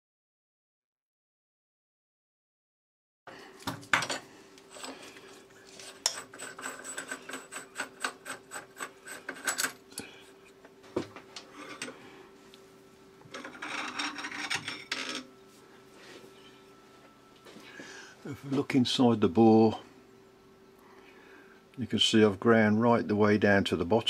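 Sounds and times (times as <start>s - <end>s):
metal scraping: 4.7s - 9.8s, 13.3s - 15.3s.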